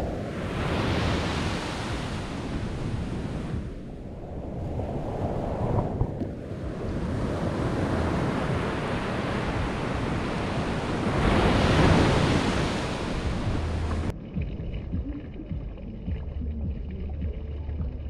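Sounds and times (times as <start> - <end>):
ocean surf on beach: 0.0 - 14.1.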